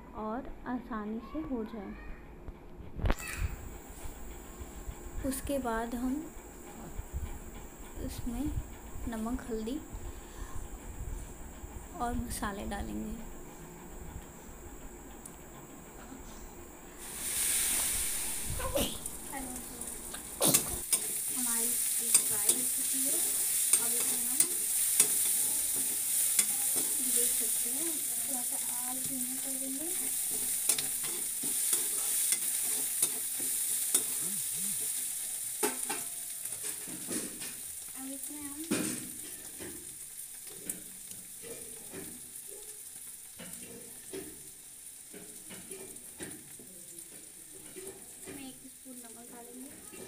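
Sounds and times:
vegetables sizzling in a pan: 3.0 - 14.6, 16.2 - 50.0
spatula scraping pan: 20.3 - 37.6.

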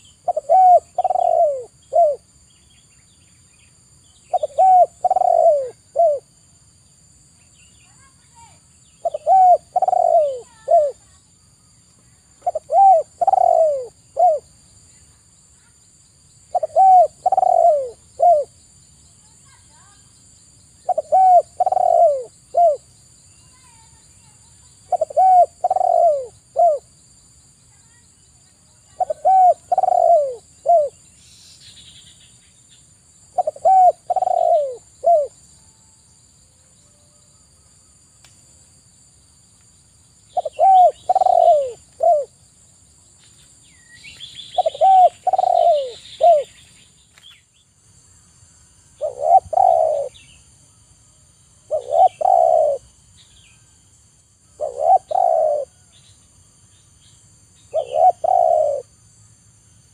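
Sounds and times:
dove cooing: 0.0 - 2.3, 4.3 - 6.3, 9.0 - 11.2, 12.4 - 14.5, 16.5 - 18.6, 20.8 - 22.9, 24.8 - 26.9, 28.8 - 31.0, 33.3 - 35.4, 40.3 - 42.4, 44.6 - 46.6, 49.0 - 50.2, 51.7 - 52.9, 54.6 - 55.8, 57.7 - 58.9.

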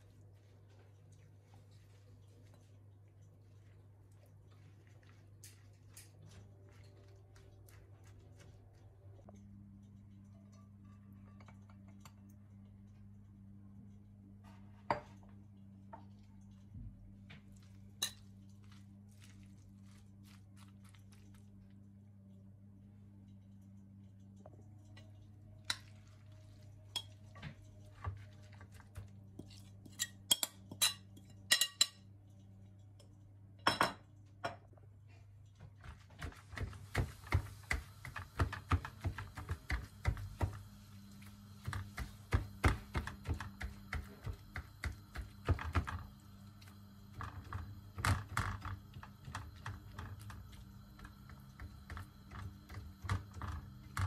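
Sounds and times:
steady low hum: 0.0 - 54.0
vegetables sizzling and crackling: 36.2 - 54.0.

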